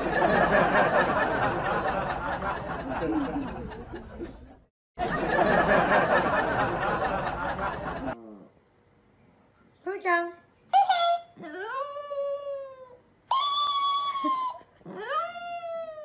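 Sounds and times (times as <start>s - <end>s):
group laughing: 0.0s - 8.2s.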